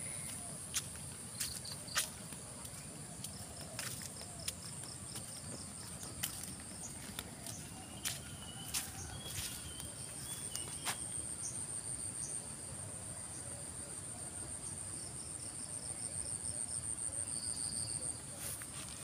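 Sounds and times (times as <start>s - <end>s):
footsteps on dirt path: 0.0s - 11.1s
insects chorus: 0.0s - 19.0s.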